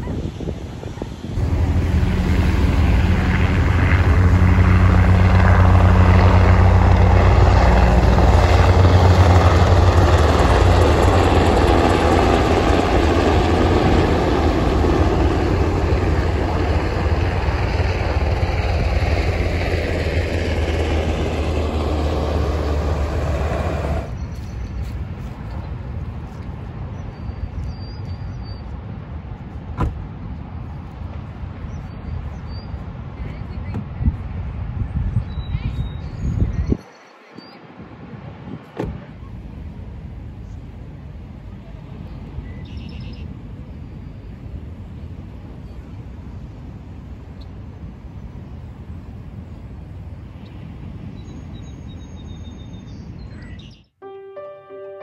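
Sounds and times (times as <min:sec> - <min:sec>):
helicopters flying low: 0:00.0 - 0:24.4, 0:39.2 - 0:51.2.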